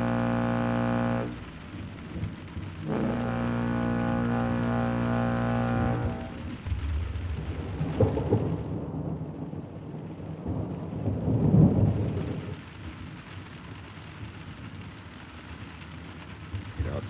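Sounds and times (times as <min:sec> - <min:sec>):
thunder rumbling: 0:00.0 - 0:12.6
steady rain: 0:00.0 - 0:17.0.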